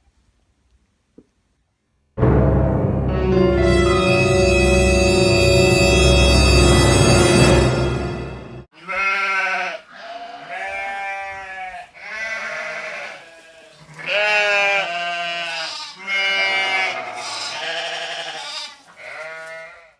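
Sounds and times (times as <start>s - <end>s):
wavering bleat-like calls: 8.8s - 19.9s.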